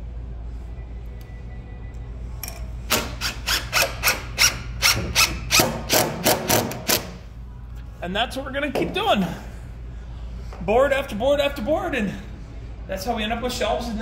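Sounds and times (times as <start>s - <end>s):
impact driver driving a screw: 2.9s - 7.2s.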